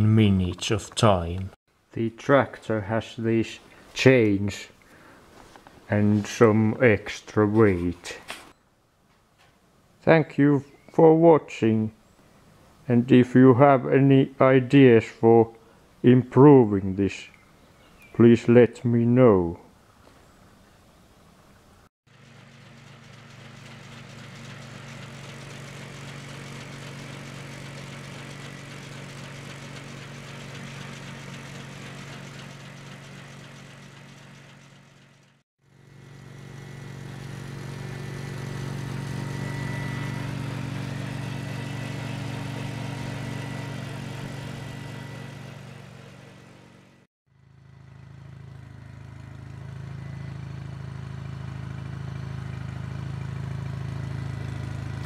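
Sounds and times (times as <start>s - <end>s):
lawn tractor engine running: 0.0s - 1.5s, 22.1s - 55.0s.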